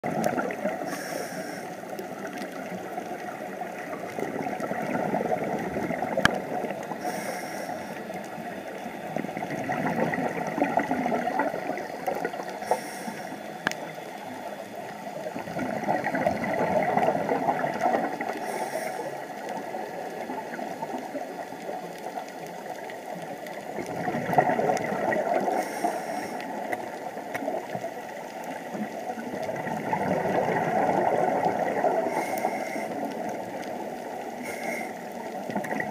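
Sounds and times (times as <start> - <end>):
regulator inhalation hiss: 0.8 - 2.0, 6.9 - 8.5, 12.5 - 13.6, 18.4 - 19.4, 25.4 - 26.7, 32.0 - 33.1, 34.4 - 35.2
bubbly exhalations: 23.8 - 25.6.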